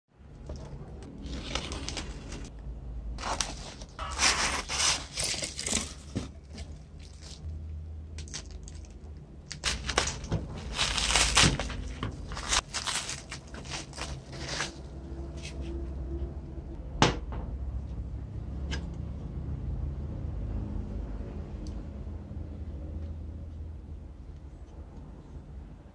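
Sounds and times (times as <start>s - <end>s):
cardboard parcel tearing: 3.2s - 7.5s, 9.5s - 15.6s
plastic wrapping crinkling: 3.2s - 7.5s, 8.2s - 14.9s.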